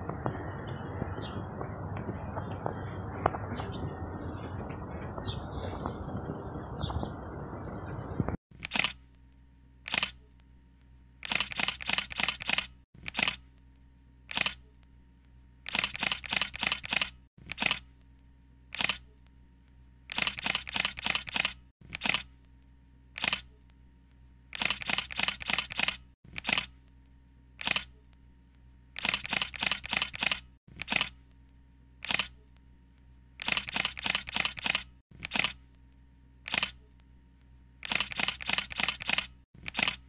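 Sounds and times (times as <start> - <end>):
outdoor rushing noise: 0.0 - 8.4
faint steady hum: 0.0 - 25.7, 26.3 - 40.0
camera shutter clicks: 8.6 - 9.0, 9.9 - 10.2, 11.2 - 13.4, 14.3 - 14.6, 15.7 - 17.9, 18.7 - 19.1, 20.1 - 22.3, 23.2 - 23.5, 24.5 - 26.8, 27.6 - 28.0, 29.0 - 31.2, 32.0 - 32.4, 33.4 - 35.6, 36.5 - 36.8, 37.8 - 40.0.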